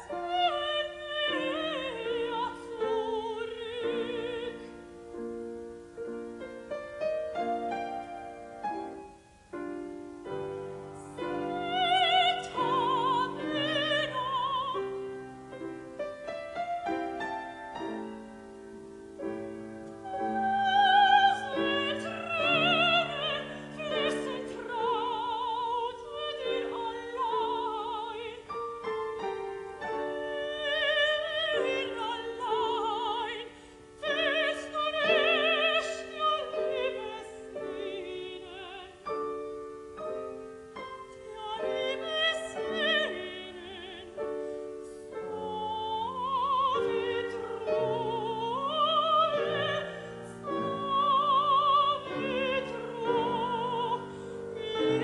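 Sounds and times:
piano chords: 0.0 - 55.0
soprano singing: 0.0 - 55.0.

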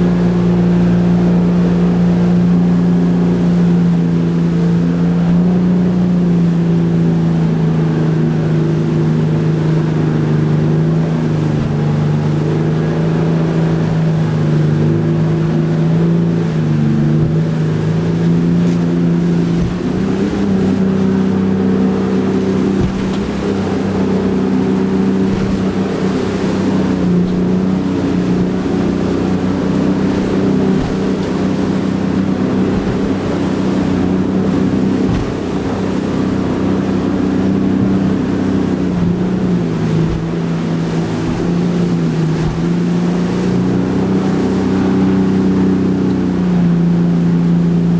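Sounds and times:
boat engine droning: 0.0 - 47.9
rushing water: 0.0 - 47.9
knocks against boat hull: 22.7 - 23.6, 35.0 - 35.6, 40.0 - 40.4.

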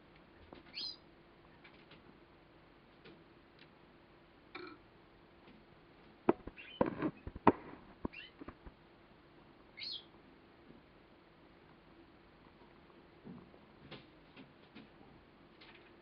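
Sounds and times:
faint steady hum: 0.0 - 16.0
canary chirping: 0.6 - 1.1, 6.4 - 8.7, 9.7 - 10.2
sharp clicks and knocks: 6.3 - 8.8.

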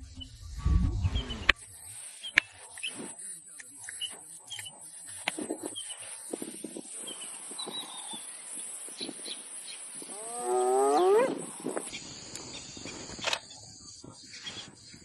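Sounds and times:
leopard call rising in pitch: 10.1 - 11.5.

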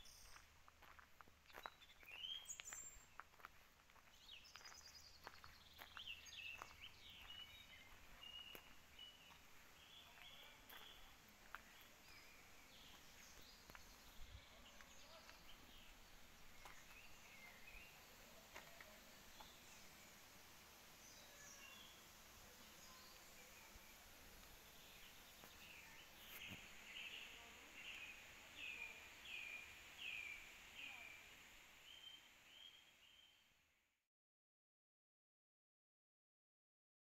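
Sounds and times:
birds chirping: 0.0 - 20.3, 21.0 - 33.3
footsteps on gravel: 0.1 - 15.9, 16.6 - 17.8, 18.4 - 19.6, 24.4 - 26.8.

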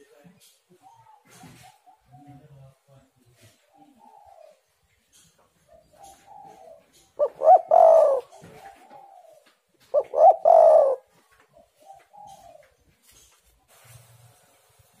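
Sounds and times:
dove cooing: 0.8 - 2.4, 3.4 - 12.8.

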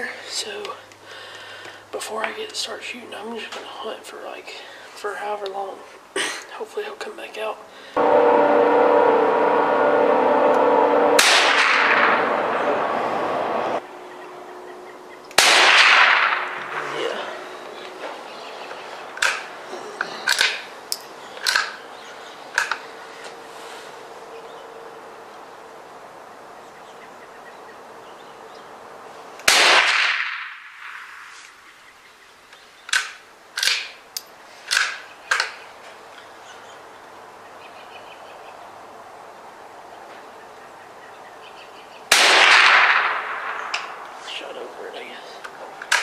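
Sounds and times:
quieter sharp cracks: 10.2 - 13.8, 15.3 - 18.3, 19.1 - 21.8, 29.4 - 31.6, 32.9 - 35.6, 42.1 - 46.0
loud rifle shot: 11.2 - 12.3, 15.4 - 17.2, 29.4 - 31.2, 42.1 - 44.0.

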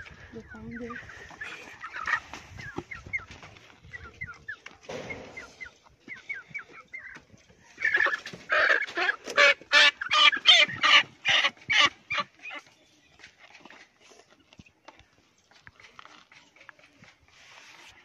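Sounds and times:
chicken squawking loudly: 7.8 - 12.6.

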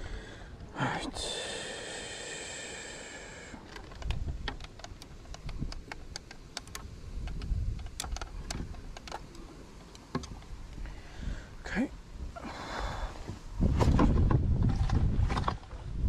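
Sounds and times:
net and scale handling clicks: 3.6 - 10.5.

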